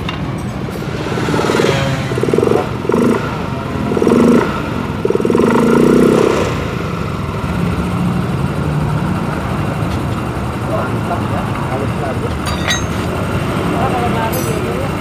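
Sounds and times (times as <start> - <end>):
scooter engine revving: 0.6 - 12.2.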